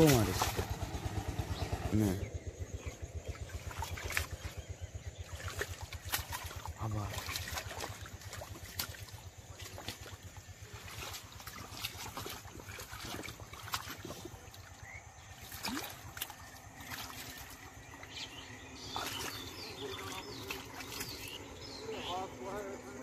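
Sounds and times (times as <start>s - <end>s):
hands splashing in muddy water: 0.0s - 1.3s, 3.2s - 21.7s
wet slaps and clicks: 3.7s - 4.4s, 5.6s - 6.6s, 7.2s - 10.1s.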